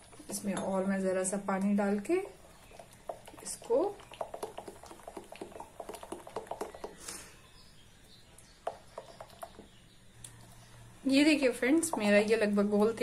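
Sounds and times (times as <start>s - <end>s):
spoon stirring batter in glass bowl: 1.6s - 7.0s, 8.5s - 10.7s.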